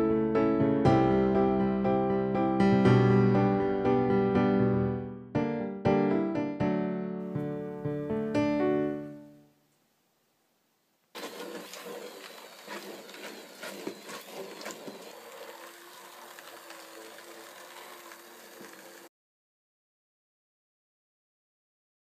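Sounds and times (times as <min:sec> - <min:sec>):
piano music: 0:00.0 - 0:09.6
grapes crushing with clicks and knocks: 0:11.2 - 0:19.1
stick blender motor: 0:11.2 - 0:19.1.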